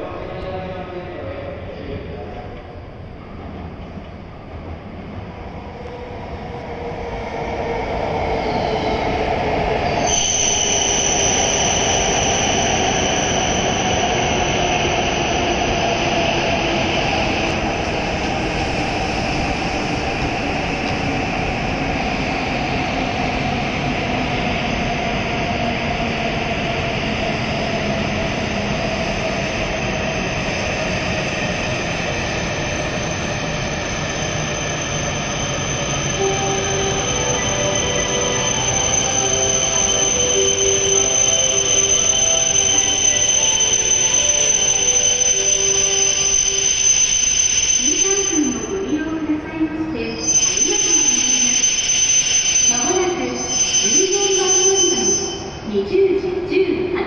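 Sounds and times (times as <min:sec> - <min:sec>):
train rushing noise braking: 0:06.6 - 0:55.7
high steady whistle: 0:09.9 - 0:15.8, 0:33.1 - 0:49.1, 0:50.0 - 0:55.7.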